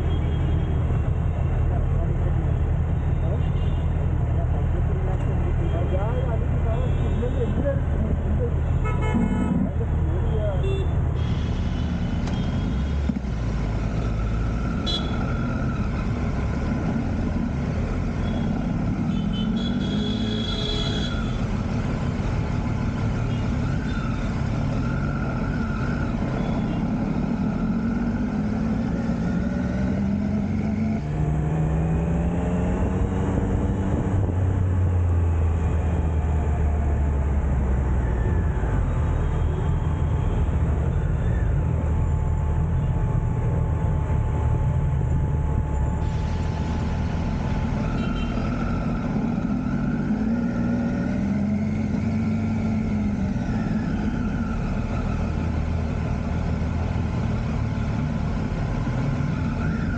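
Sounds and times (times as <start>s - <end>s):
road traffic: 0.0s - 59.9s
motorcycle engine accelerating: 25.9s - 35.0s.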